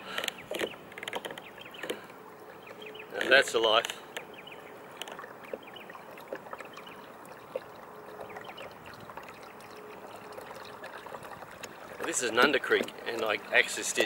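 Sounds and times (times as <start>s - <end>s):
water lapping on hull: 0.0s - 14.0s
small ticks: 5.0s - 5.6s.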